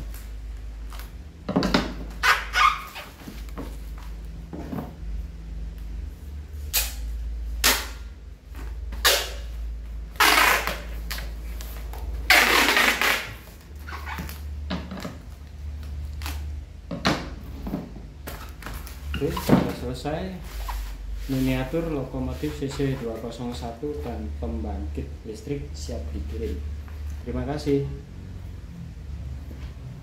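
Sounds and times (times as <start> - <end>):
steady low hum: 3.1 - 30.0
packing tape pulled off roll: 10.2 - 14.4.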